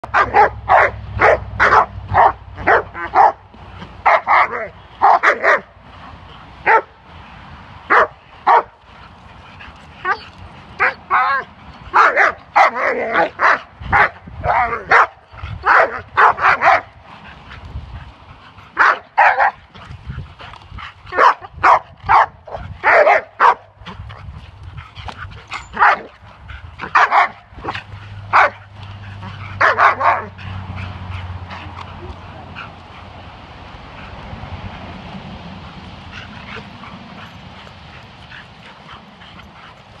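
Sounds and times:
dog barking loudly: 0:00.0 - 0:05.8, 0:06.6 - 0:07.0, 0:07.9 - 0:08.8, 0:10.0 - 0:10.2, 0:10.8 - 0:17.0, 0:18.8 - 0:19.6, 0:21.1 - 0:24.0, 0:25.7 - 0:26.2, 0:26.8 - 0:32.8.

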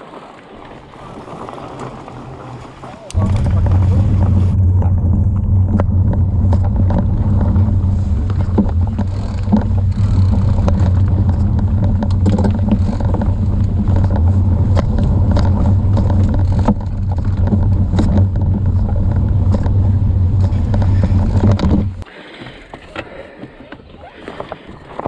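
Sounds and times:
bike tyre rolling hum: 0:01.0 - 0:22.1
bike knocks and rattles: 0:03.2 - 0:22.0.

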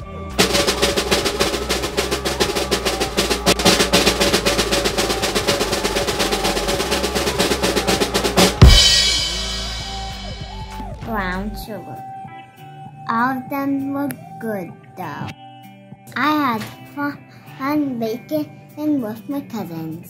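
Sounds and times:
loud drum hit with crash cymbal: 0:00.4 - 0:11.0
rapid drum roll: 0:00.4 - 0:11.0.

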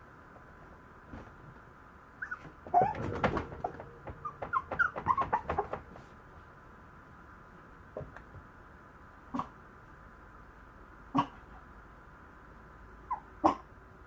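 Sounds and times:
puppy whimpering: 0:02.2 - 0:05.7, 0:13.1 - 0:13.6.

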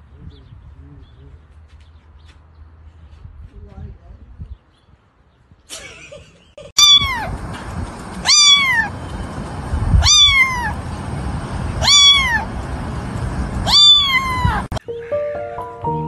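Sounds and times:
kitten meowing: 0:06.8 - 0:07.3, 0:08.2 - 0:08.9, 0:09.9 - 0:10.8, 0:11.8 - 0:12.5, 0:13.6 - 0:14.8
low rumble: 0:06.8 - 0:14.8.

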